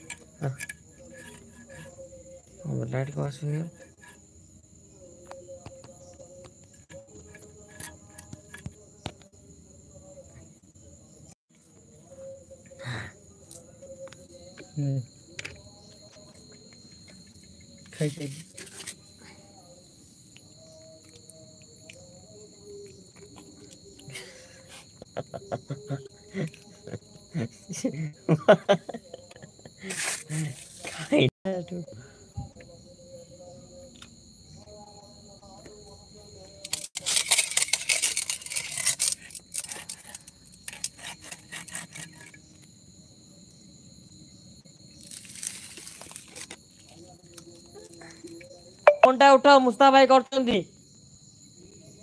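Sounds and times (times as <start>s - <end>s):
crickets chirping: 0.0s - 52.0s
insects trilling: 0.0s - 52.0s
knife scraping fish scales: 37.0s - 42.4s.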